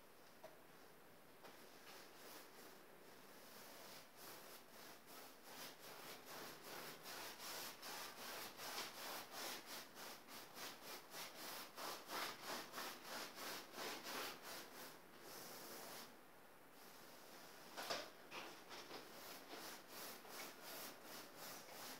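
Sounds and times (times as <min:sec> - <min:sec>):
paintbrush scrubbing on canvas: 0:01.6 - 0:16.1, 0:18.5 - 0:21.9.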